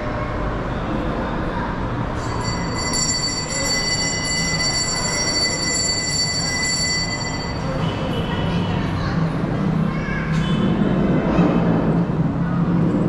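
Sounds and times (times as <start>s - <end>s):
low murmur of voices: 0.0s - 13.0s
brass bell ringing: 2.2s - 8.5s.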